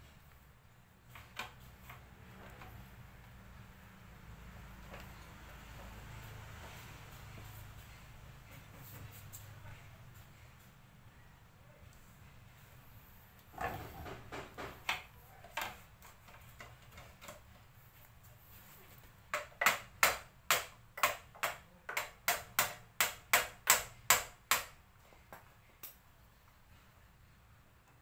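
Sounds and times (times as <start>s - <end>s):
metallic clicks of hand tools: 25.8s - 26.0s.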